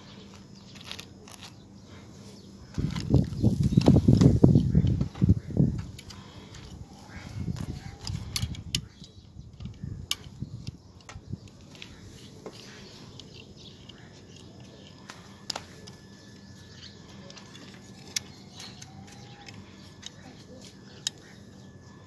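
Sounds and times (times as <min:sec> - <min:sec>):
rubbing and handling sounds: 0:00.0 - 0:05.3.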